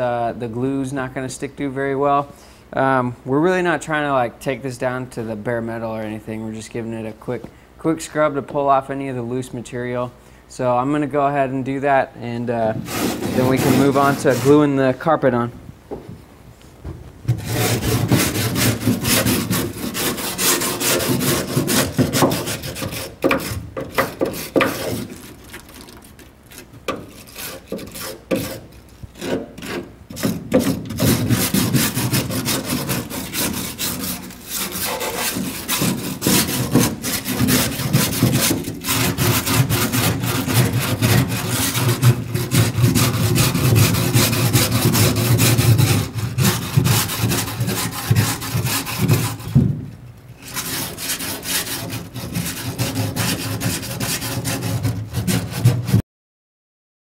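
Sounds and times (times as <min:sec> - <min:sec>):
wire brush scrubbing metal: 0:12.8 - 0:14.8, 0:17.4 - 0:49.6, 0:50.4 - 0:56.0.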